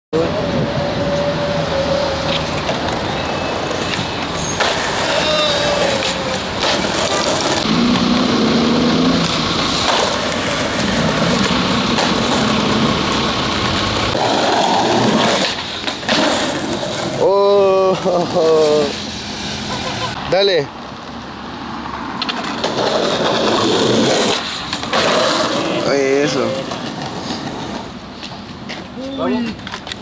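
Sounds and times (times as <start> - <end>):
city traffic: 0.1 - 30.0
skateboard wheels rolling on concrete: 0.2 - 30.0
vehicle engine humming: 0.2 - 30.0
sharp skateboard clack: 3.8 - 7.7, 9.2 - 17.2, 22.2 - 28.8.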